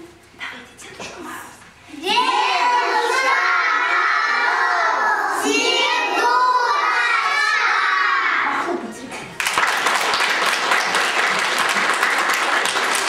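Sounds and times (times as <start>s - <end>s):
children shouting: 2.0s - 8.6s.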